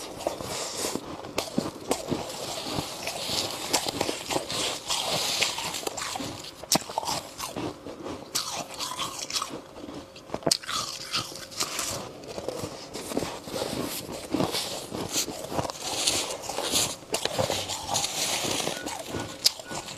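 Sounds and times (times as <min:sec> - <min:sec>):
gloved hand scooping frost: 0:00.0 - 0:06.6, 0:11.5 - 0:19.9
chewing frost crunching: 0:00.0 - 0:19.9.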